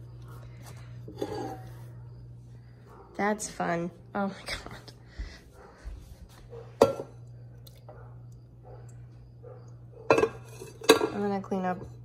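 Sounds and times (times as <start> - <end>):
steady low hum: 0.0 - 12.0
dishes clinking: 6.8 - 7.2, 10.0 - 11.4.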